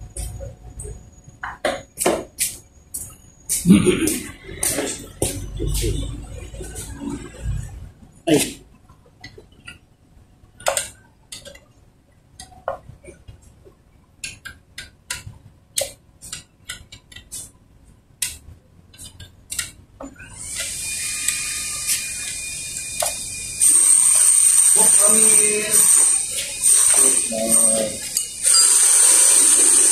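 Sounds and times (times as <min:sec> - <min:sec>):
metal tools clinking and tapping: 0:24.2 - 0:29.0.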